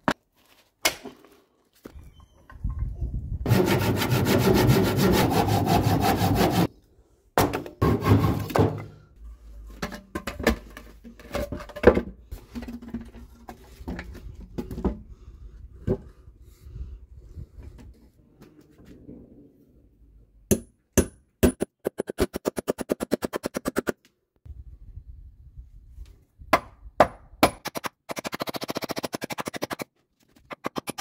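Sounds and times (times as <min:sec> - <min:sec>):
hammer striking nails into wood: 0:20.5 - 0:21.7, 0:26.6 - 0:28.4.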